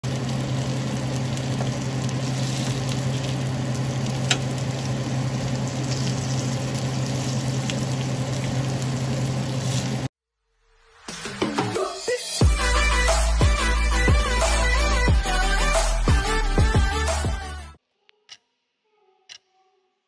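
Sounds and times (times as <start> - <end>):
meat and onion sizzling in pan: 0.0 - 10.1.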